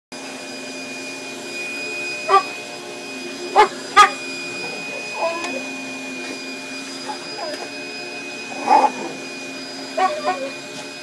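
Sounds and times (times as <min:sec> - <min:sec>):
vacuum cleaner whine: 0:00.1 - 0:11.0
dog barking: 0:02.3 - 0:02.5, 0:03.5 - 0:04.2, 0:08.5 - 0:09.2, 0:10.0 - 0:10.5.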